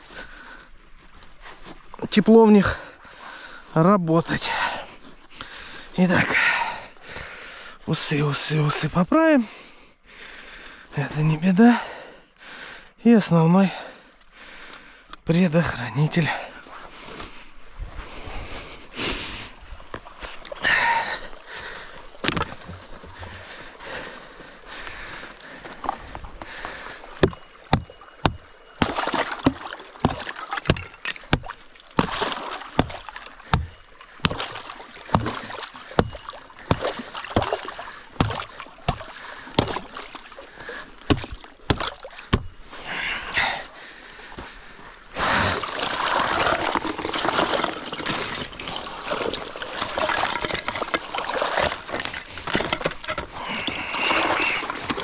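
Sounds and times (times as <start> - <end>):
water sloshing: 19.5 - 55.0
hatchet chopping ice: 27.2 - 40.0, 41.0 - 42.6
ice scraping: 45.4 - 55.0.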